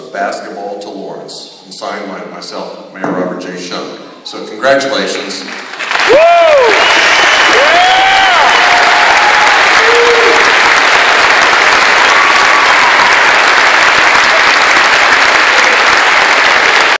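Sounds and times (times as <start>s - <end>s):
audience applauding: 5.4s - 17.0s.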